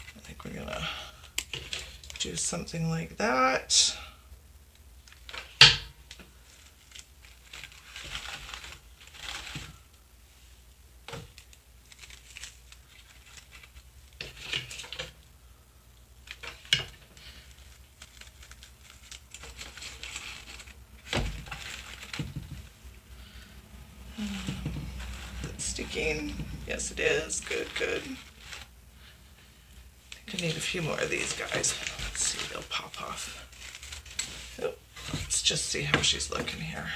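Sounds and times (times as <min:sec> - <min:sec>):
artificial flowers rustling: 0:00.0 - 0:36.9.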